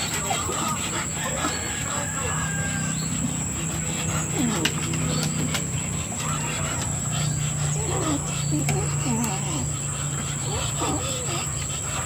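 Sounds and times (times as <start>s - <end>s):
dogs growling: 0.0s - 12.0s.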